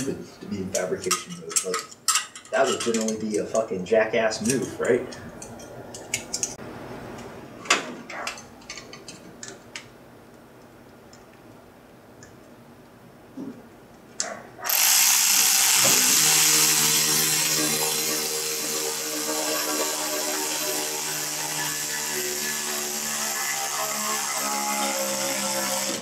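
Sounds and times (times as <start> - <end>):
power tool motor whirring: 14.7 - 26.0.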